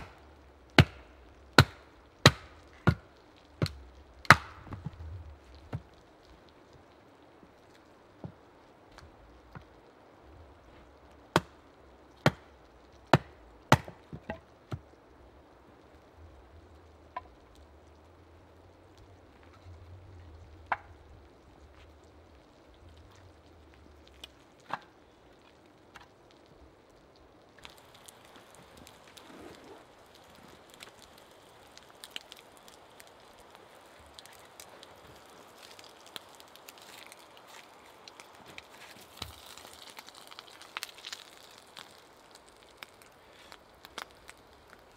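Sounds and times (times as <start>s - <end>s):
campfire crackling: 0.0s - 44.9s
axe chopping log: 0.8s - 1.0s, 1.6s - 3.0s, 3.6s - 4.9s, 13.1s - 14.8s.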